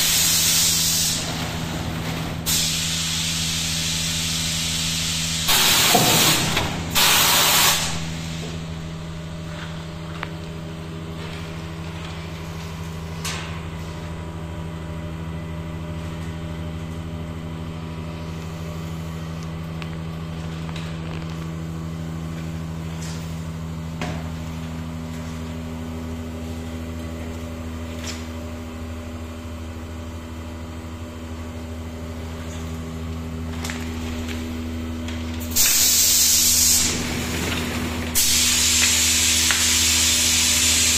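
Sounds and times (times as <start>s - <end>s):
compressed air hissing blasts: 0.0s - 1.2s, 2.5s - 8.4s, 35.4s - 37.1s, 38.2s - 40.9s.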